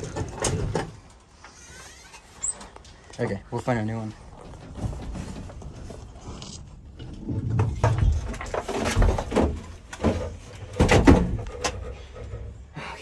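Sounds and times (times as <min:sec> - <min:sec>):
metal clunks and knocks: 0:00.0 - 0:01.2, 0:07.0 - 0:12.7.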